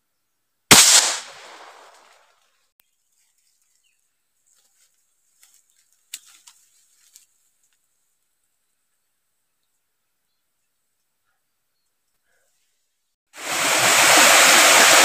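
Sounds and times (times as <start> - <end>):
gunshot with echo: 0.7 - 2.2.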